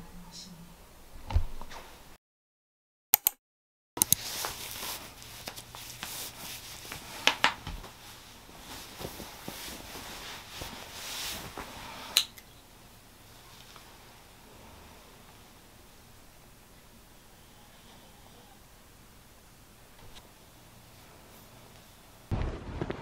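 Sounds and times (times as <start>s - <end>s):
clothing fabric rustling: 4.2s - 12.1s.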